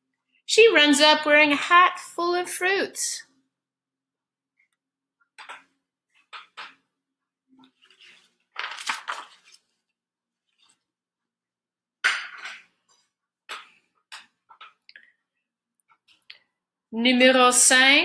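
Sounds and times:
book pages rustling: 7.5s - 10.9s.

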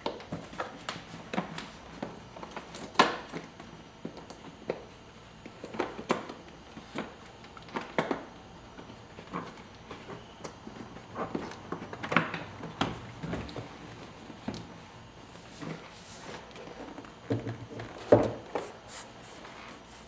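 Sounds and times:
rustling of hands: 17.8s - 20.0s.

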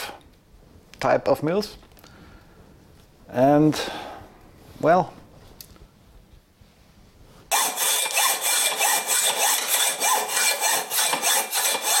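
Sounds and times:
rhythmic scraping strokes: 7.5s - 12.0s.

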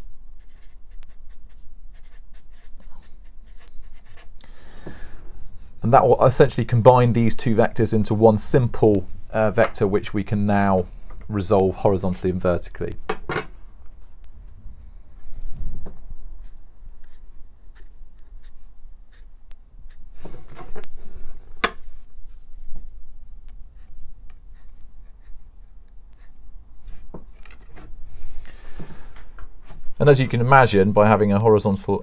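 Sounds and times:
marker pen drawing strokes: 0.4s - 4.4s, 16.4s - 20.6s, 23.7s - 27.1s.

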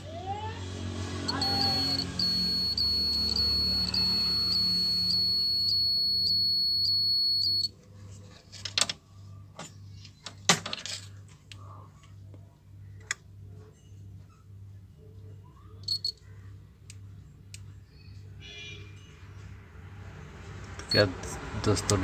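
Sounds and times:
high-pitched electronic whine: 1.1s - 6.4s
power supply ticking: 1.3s - 7.7s.

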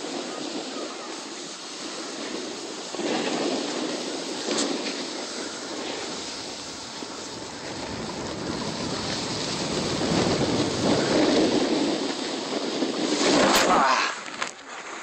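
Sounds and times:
wind on microphone: 0.0s - 14.5s
snowboard scraping over snow: 0.0s - 15.0s.

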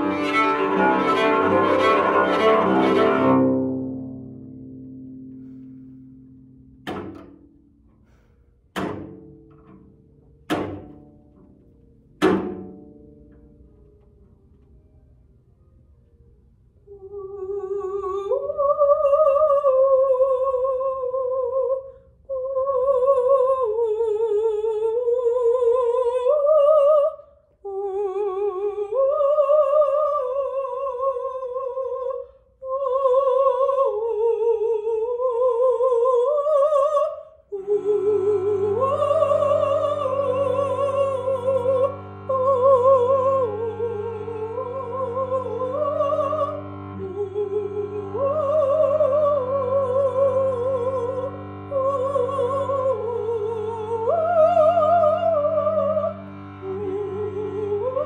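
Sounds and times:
cello bowed low notes: 0.0s - 27.0s, 27.6s - 58.0s
woman singing wordless melody: 16.9s - 58.0s.

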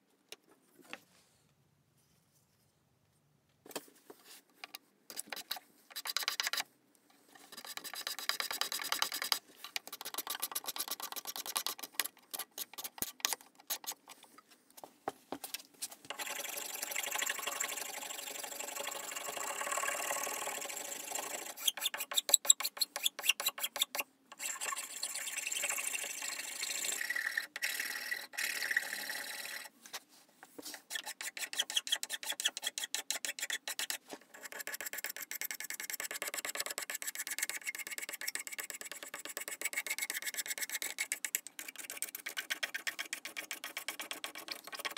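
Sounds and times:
file scraping wood: 21.3s - 24.6s, 27.0s - 29.7s, 30.6s - 44.9s.

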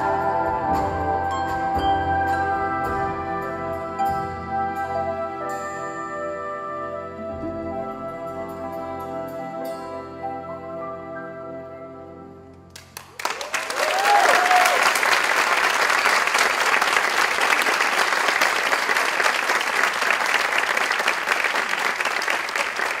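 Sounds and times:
audience applauding: 12.7s - 23.0s
audience cheer: 13.2s - 19.7s.

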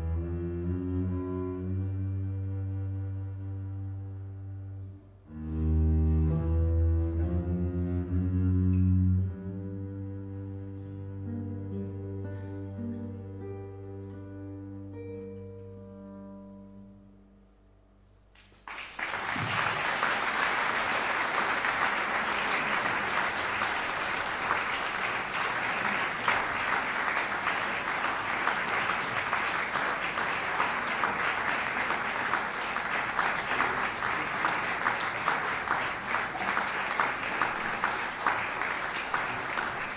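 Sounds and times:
audience applause: 18.6s - 39.9s.

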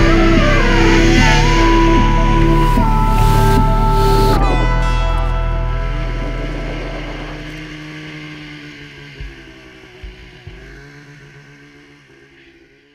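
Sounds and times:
snowmobile engine running: 0.0s - 12.9s.

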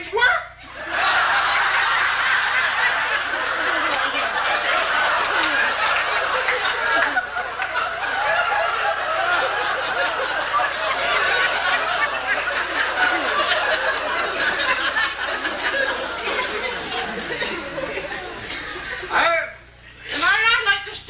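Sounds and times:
audience laughing: 0.6s - 19.4s.

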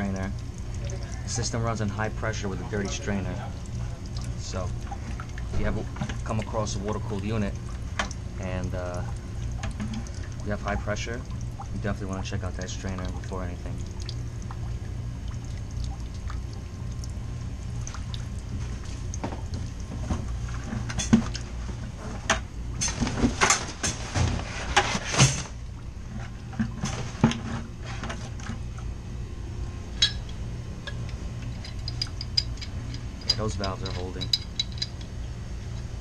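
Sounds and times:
water trickling into plastic bucket: 0.0s - 22.3s
steady low hum: 0.0s - 36.0s.

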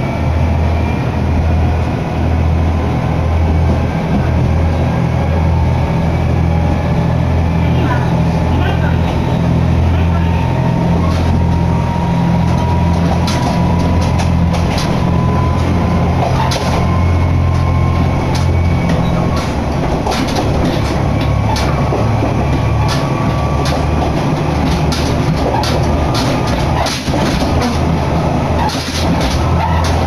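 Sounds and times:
faint whine: 0.0s - 30.0s
railcar engine drone: 0.0s - 30.0s
wheel clicks on rails: 10.9s - 30.0s.

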